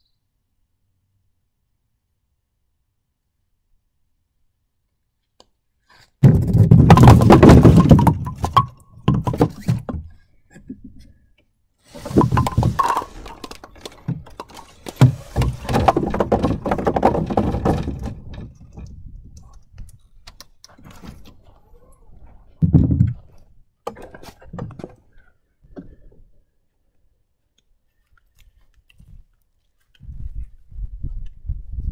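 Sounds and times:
bowling ball striking pins: 0:06.2 - 0:09.6
pins clattering and knocking: 0:06.2 - 0:09.9, 0:12.0 - 0:19.0.

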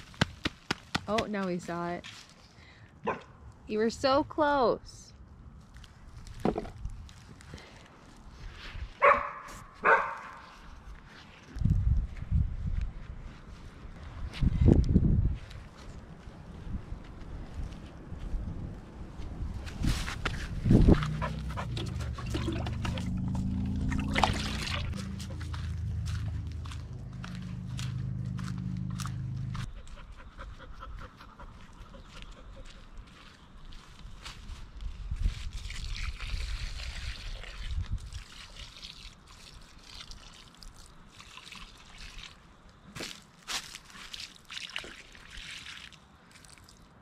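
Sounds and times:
low rumble: 0:20.3 - 0:29.8
water sloshing and splashing: 0:20.4 - 0:29.6, 0:35.3 - 0:47.0.

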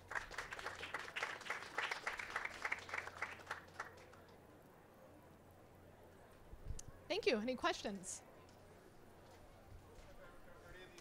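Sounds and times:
audience applauding: 0:00.0 - 0:04.2.

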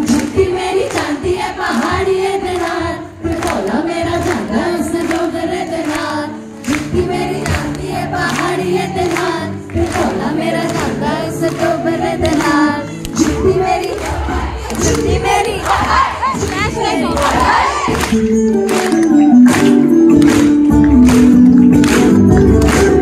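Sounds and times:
woman singing into microphone: 0:00.0 - 0:18.0
pop backing track with beat: 0:06.6 - 0:23.0.

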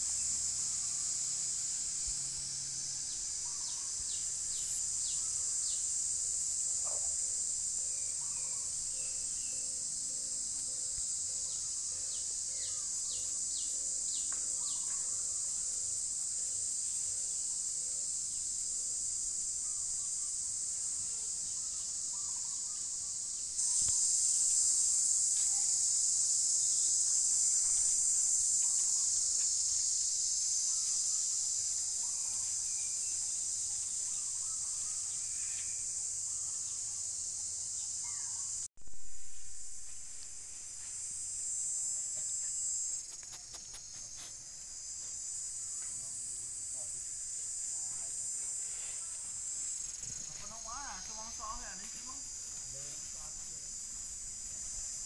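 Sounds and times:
high-pitched insect chorus: 0:00.0 - 0:55.0
faint bird chirps: 0:03.1 - 0:18.1, 0:21.0 - 0:24.1, 0:30.7 - 0:37.1.

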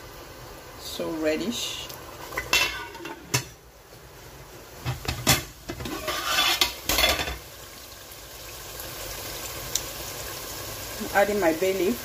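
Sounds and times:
metal pot lid clanking: 0:02.4 - 0:03.6, 0:04.8 - 0:07.4
sauce bubbling at a simmer: 0:06.0 - 0:12.0.

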